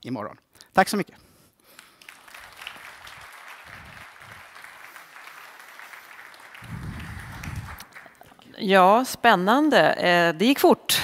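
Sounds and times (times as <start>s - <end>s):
audience applauding: 1.7s - 8.5s.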